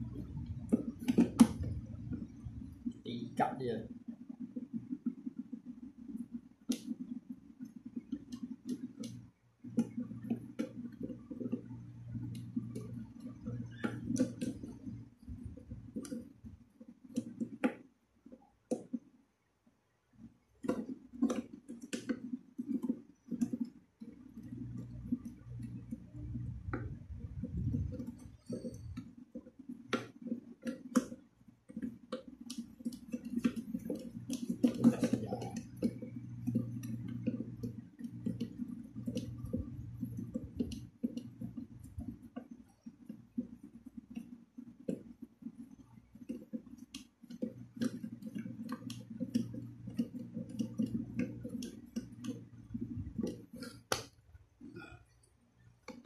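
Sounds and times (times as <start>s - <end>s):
low steady hum: 0.0s - 4.0s, 8.4s - 17.4s, 24.1s - 29.2s, 33.0s - 44.0s, 47.5s - 56.0s.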